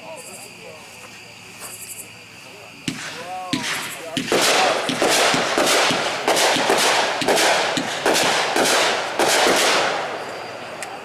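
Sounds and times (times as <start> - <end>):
firework bangs with hiss: 2.8 - 11.0.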